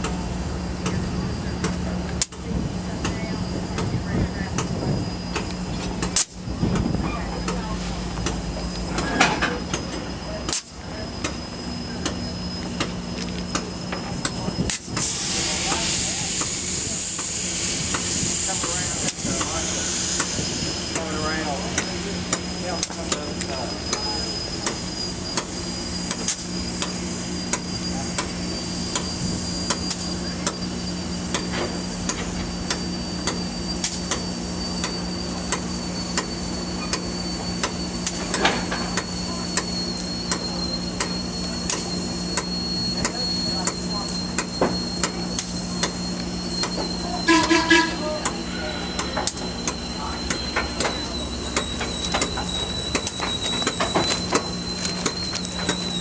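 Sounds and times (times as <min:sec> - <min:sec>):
steam locomotive low hum: 0:00.0 - 0:56.0
thin high whine: 0:00.2 - 0:56.0.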